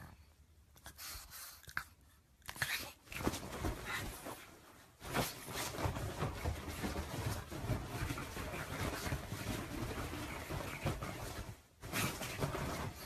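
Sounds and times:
dog scuffling on bed sheets: 3.0s - 13.0s.

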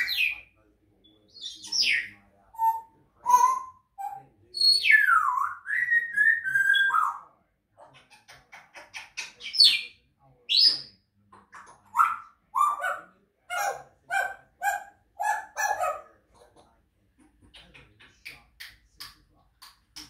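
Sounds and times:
parrots whistling: 1.3s - 7.3s
parrot squawky calls: 1.3s - 16.6s.

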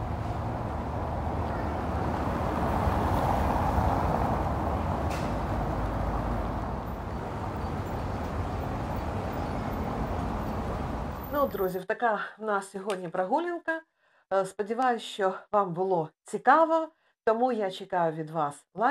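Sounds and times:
vehicle passing on street: 0.0s - 11.6s.

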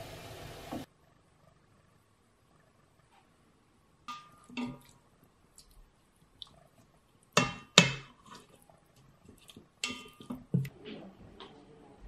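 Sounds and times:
utensil clanking against metal pot: 9.6s - 10.7s.

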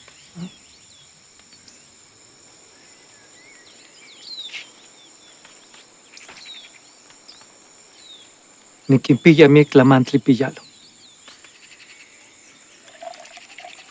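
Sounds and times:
birds chirping: 0.0s - 2.0s
insects trilling: 0.0s - 13.9s.

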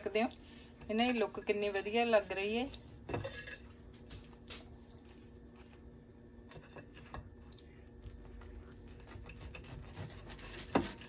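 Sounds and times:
low steady hum: 0.0s - 11.0s
knife cutting toasted bread: 8.0s - 11.0s.

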